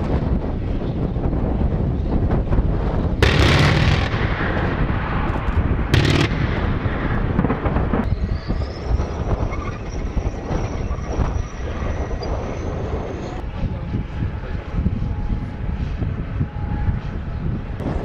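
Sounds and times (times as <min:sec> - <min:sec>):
low rumble: 0:00.0 - 0:18.0
cannon bursts: 0:03.2 - 0:05.0, 0:05.9 - 0:07.8.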